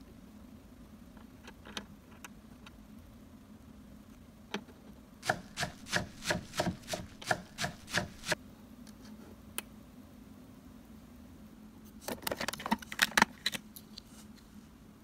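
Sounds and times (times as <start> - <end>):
knife chopping on cutting board: 5.2 - 8.4.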